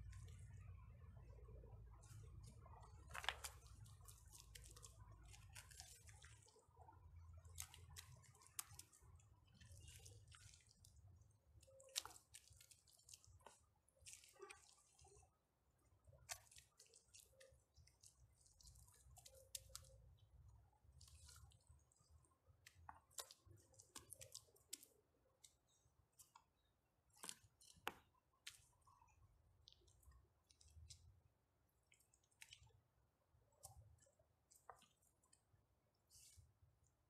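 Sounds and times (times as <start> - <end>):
wet mud squelching: 0.0 - 37.0
stones clicking and knocking: 2.1 - 6.2.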